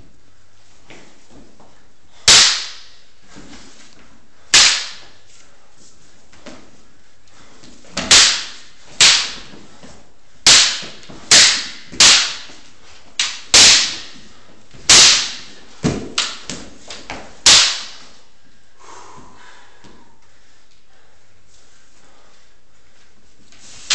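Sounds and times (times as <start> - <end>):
wooden swords clacking together: 2.2 - 3.6, 4.5 - 5.2, 7.8 - 18.2.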